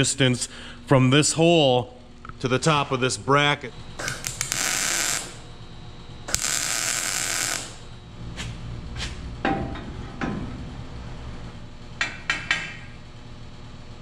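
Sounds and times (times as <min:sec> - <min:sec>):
tools tapping on metal: 0:12.0 - 0:12.8.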